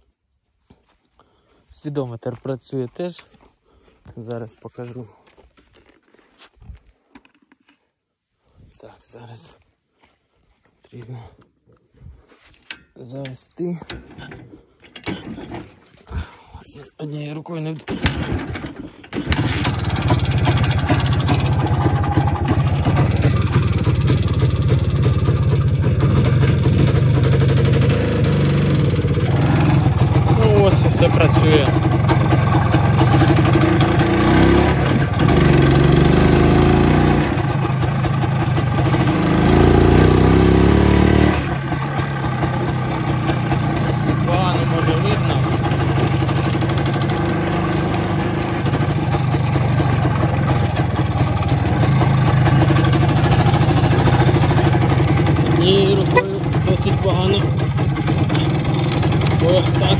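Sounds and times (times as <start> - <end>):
two-stroke motorcycle engine running: 17.9 - 59.9.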